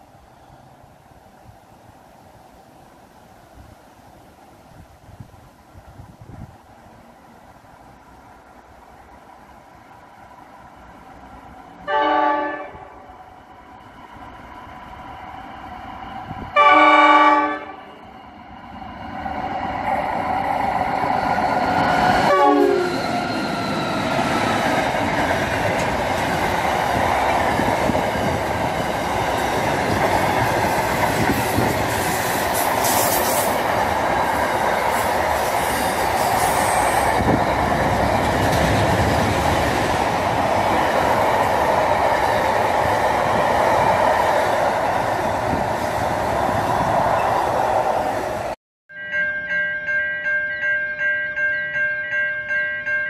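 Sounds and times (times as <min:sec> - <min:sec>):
train horn blast: 0:11.8 - 0:13.1, 0:16.6 - 0:18.0, 0:22.2 - 0:23.0
train wagons rumbling and clattering: 0:17.6 - 0:48.6.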